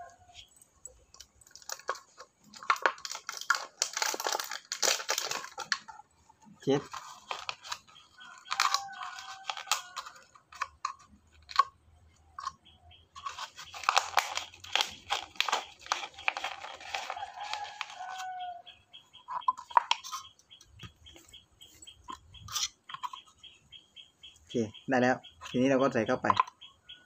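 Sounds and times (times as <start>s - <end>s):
plastic bottle and can crunching: 1.1s - 11.8s, 13.2s - 18.4s, 19.3s - 21.3s, 26.2s - 26.6s.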